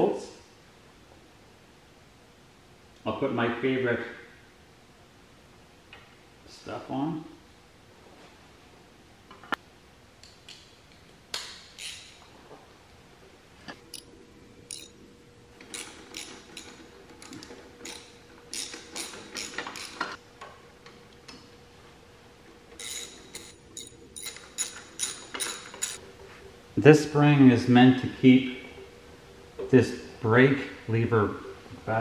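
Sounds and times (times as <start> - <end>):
metal rod clicking: 14.7 - 14.9.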